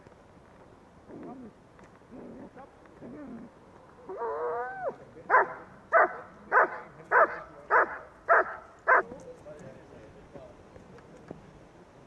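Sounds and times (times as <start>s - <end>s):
dog barking: 5.3s - 9.1s.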